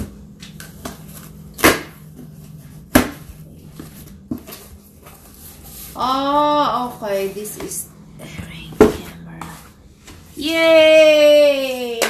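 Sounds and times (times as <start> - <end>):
cardboard scraping and rustling: 2.2 - 7.8.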